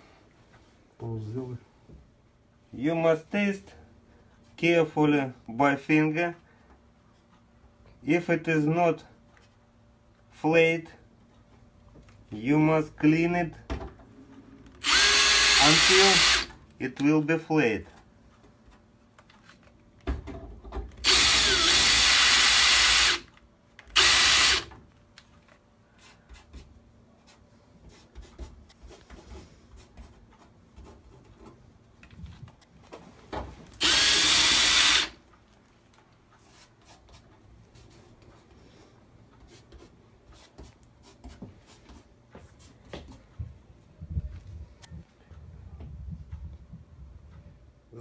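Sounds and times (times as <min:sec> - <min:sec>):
electric drill grinding into metal: 0:14.8 - 0:16.5, 0:21.0 - 0:23.3, 0:23.9 - 0:24.7, 0:33.8 - 0:35.2.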